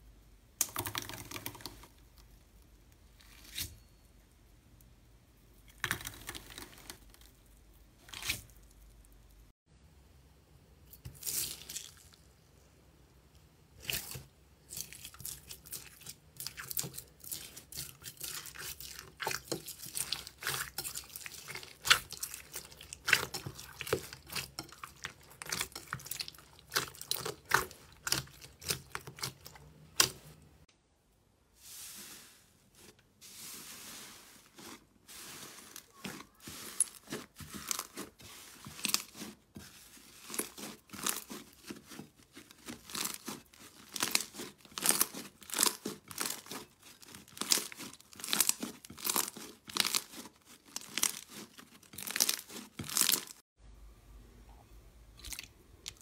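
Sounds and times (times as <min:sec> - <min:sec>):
slime squelching and popping: 0:13.8 - 0:30.4, 0:40.1 - 0:53.4.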